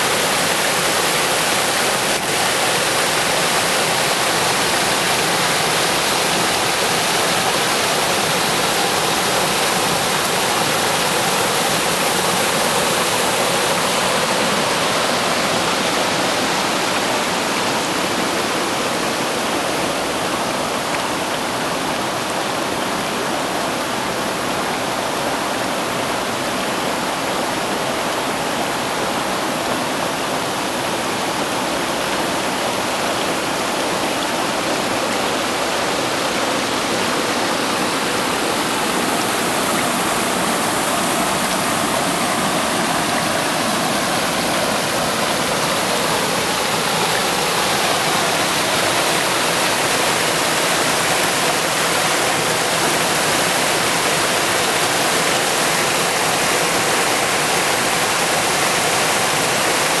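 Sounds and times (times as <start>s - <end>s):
stream splashing over stones: 0.0s - 60.0s.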